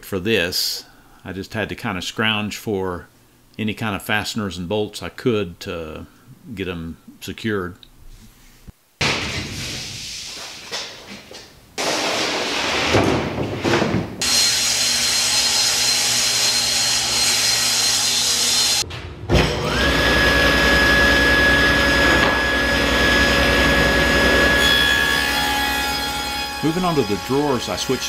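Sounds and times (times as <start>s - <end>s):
board knocking and scraping: 10.6s - 14.2s
table saw cutting board: 11.8s - 28.0s.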